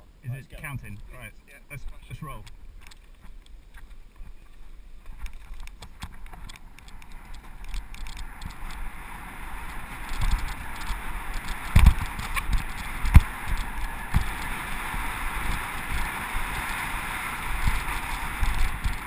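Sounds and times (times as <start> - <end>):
rush of wind: 0.6 - 19.0
bike tyres rolling over dirt: 0.8 - 19.0
bike rattling in quick clicks: 5.0 - 19.0
bike thumping over bumps: 7.2 - 19.0.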